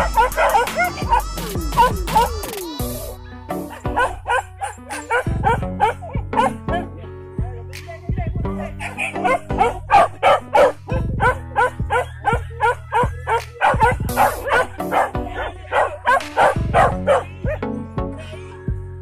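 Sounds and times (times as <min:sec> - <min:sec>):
dogs barking and yelping: 0:00.0 - 0:07.1, 0:08.5 - 0:18.4
background music: 0:00.0 - 0:19.0.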